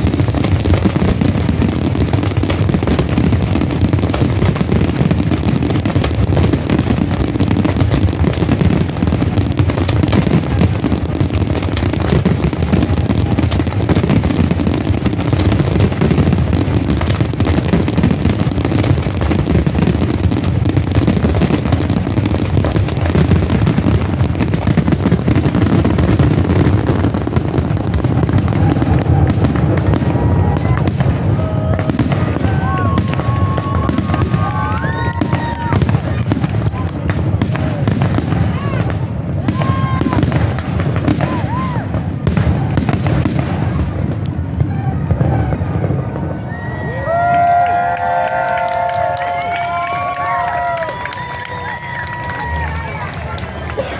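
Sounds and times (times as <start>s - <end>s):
fireworks crackling: 0.0s - 53.9s
whistling firework tones: 28.3s - 36.2s, 44.6s - 53.9s.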